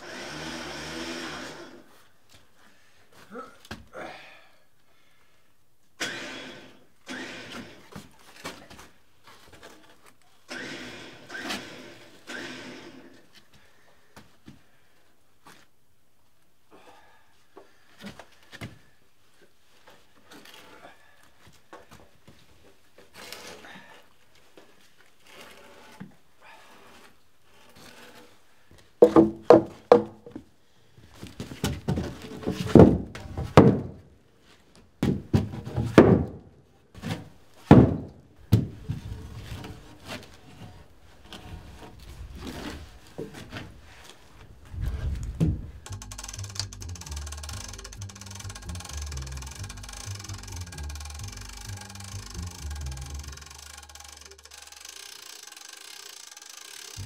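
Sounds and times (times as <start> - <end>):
wooden beams knocking and thudding: 29.0 - 30.4, 31.4 - 34.0, 35.0 - 36.5, 37.6 - 38.9.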